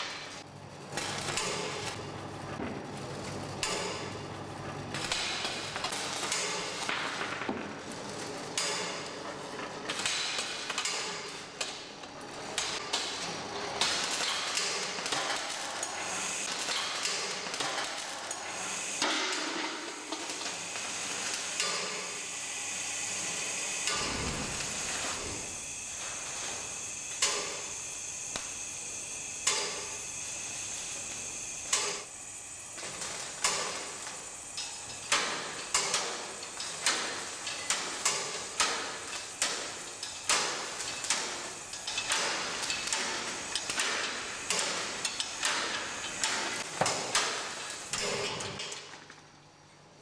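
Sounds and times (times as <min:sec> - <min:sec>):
steady mechanical whir: 0:12.2 - 0:48.6.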